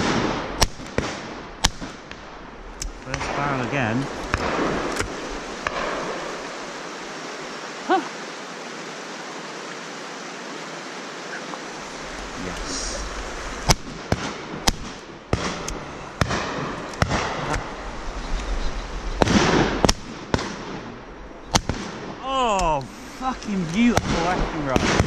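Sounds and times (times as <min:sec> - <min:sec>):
shotgun shots: 0:00.0 - 0:06.3, 0:13.6 - 0:17.6, 0:19.2 - 0:22.2, 0:24.0 - 0:25.0
steady hiss: 0:00.1 - 0:25.0.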